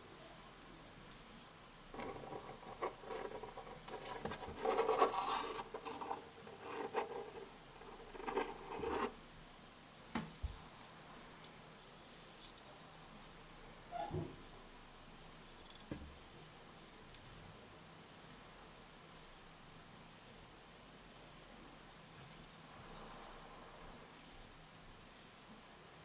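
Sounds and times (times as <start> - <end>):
fingers rubbing on knife handle: 1.9 - 9.2.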